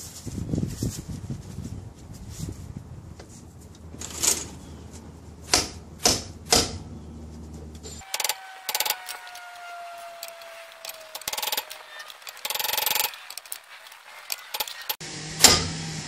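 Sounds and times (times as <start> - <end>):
hammer striking steel: 5.5 - 6.8.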